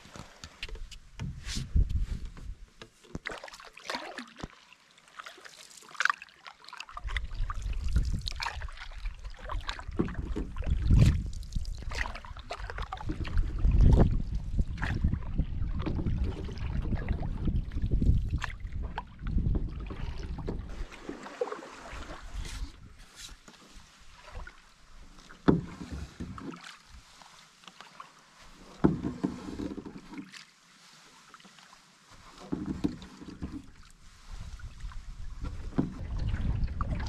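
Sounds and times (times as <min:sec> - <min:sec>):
paddle splashing water: 0:00.0 - 0:37.0
wind buffeting microphone: 0:07.0 - 0:08.7, 0:10.1 - 0:12.1, 0:12.8 - 0:20.9, 0:34.2 - 0:37.0.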